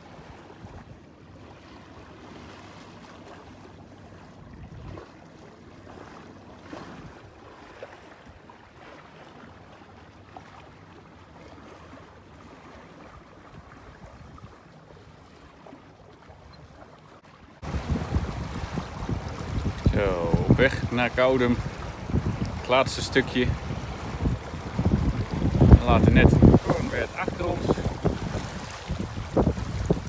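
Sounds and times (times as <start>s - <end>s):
water rushing along boat hull: 0.0s - 30.0s
wind noise: 17.6s - 30.0s.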